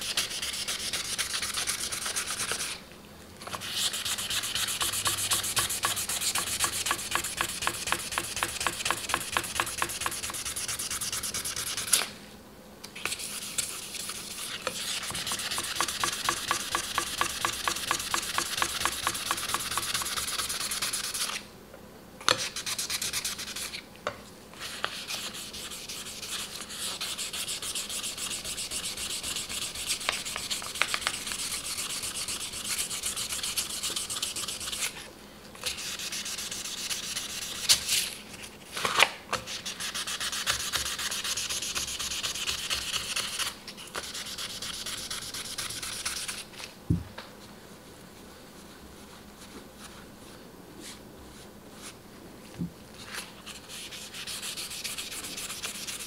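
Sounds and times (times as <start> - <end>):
sandpaper rubbing on knife blade: 0.0 - 2.8, 3.6 - 12.0, 13.0 - 21.4, 22.4 - 23.8, 24.6 - 35.0, 35.7 - 37.9, 39.5 - 46.5, 53.4 - 56.0.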